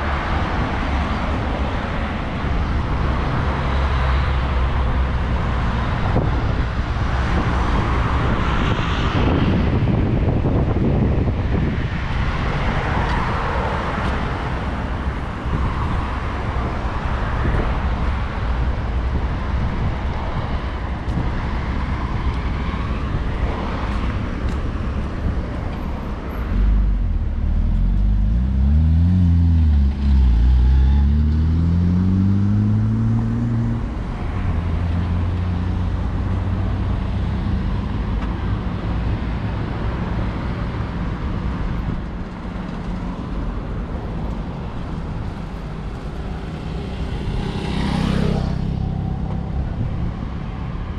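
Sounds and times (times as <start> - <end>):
passing cars: 0.0 - 50.9
vehicle engine pulling away: 26.6 - 33.8.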